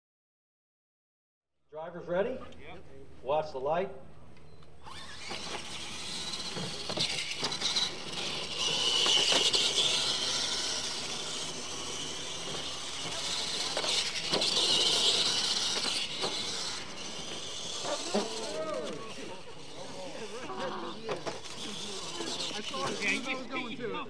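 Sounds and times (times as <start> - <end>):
toy truck electric motors whining: 4.8 - 24.0.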